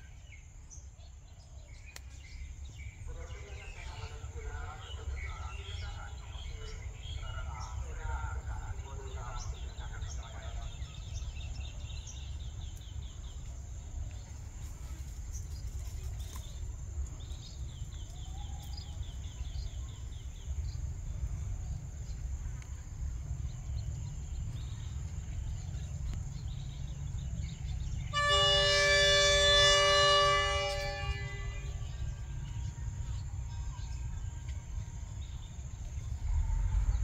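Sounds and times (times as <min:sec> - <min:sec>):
diesel railcar engine rumble: 0:00.0 - 0:37.0
train horn blast: 0:27.9 - 0:35.4.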